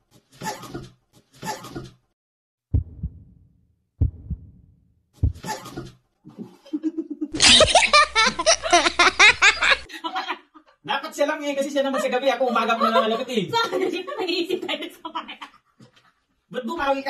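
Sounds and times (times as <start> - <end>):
heartbeat thumps: 2.7 - 3.4, 4.0 - 4.6, 5.2 - 5.6
loud laughter: 6.7 - 10.5.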